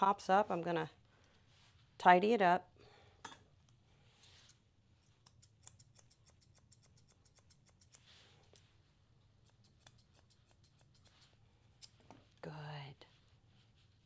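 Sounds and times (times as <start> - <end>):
grooming shears snipping fur: 4.2 - 12.4.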